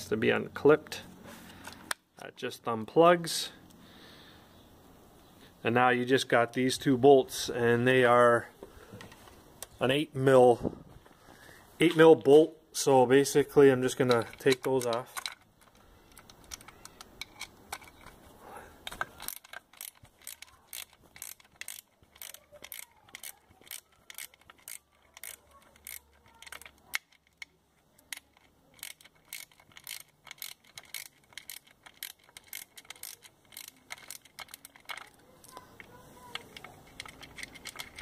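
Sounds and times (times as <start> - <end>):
ratchet wrench clicking: 18.8 - 38.0.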